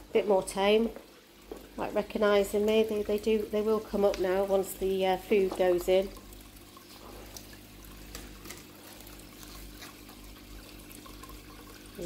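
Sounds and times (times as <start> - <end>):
low pond filter hum: 0.0 - 12.0
water trickling: 0.0 - 12.0.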